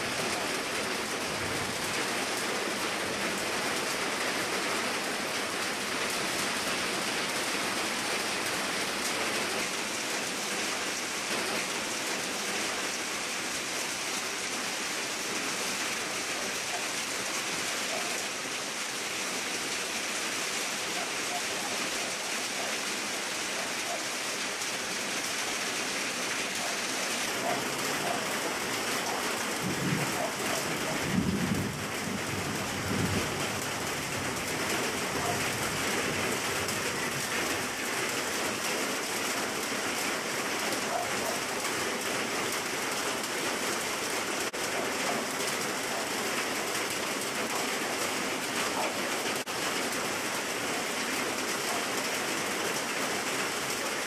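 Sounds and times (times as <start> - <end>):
rain falling on leaves: 0.0 - 54.0.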